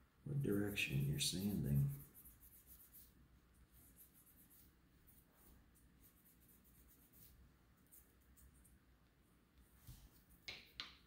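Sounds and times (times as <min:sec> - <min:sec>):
sandpaper scratching metal: 0:00.4 - 0:03.1.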